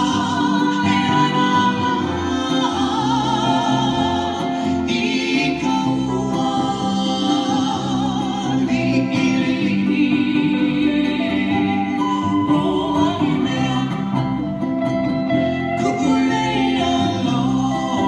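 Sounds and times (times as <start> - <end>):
woman singing: 0.0 - 14.7, 15.4 - 18.0
lap steel guitar: 0.0 - 18.0
plucked upright bass: 0.0 - 18.0
ukulele: 0.0 - 18.0.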